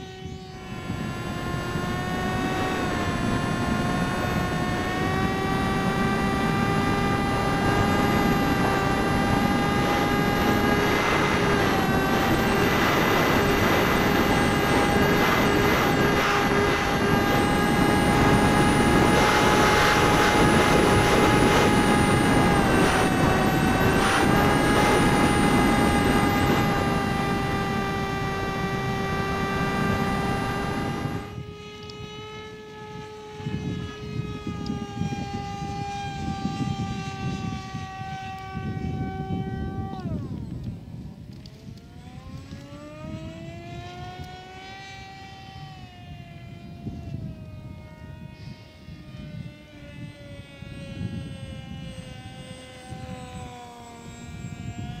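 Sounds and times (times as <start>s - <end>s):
model plane propeller whining: 0.0s - 55.0s.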